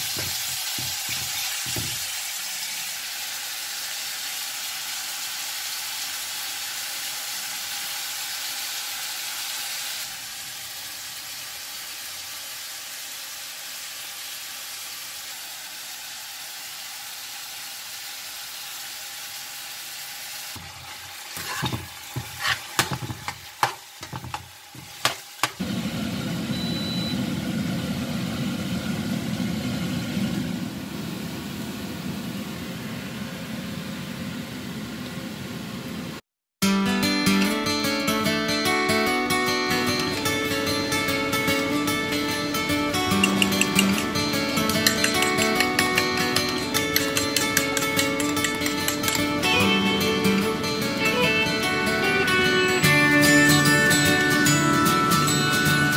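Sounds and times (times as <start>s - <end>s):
food sizzling in a frying pan: 0.0s - 34.9s, 37.2s - 55.9s
metal spoon scraping pan: 20.6s - 25.6s, 39.9s - 40.4s, 43.0s - 49.4s.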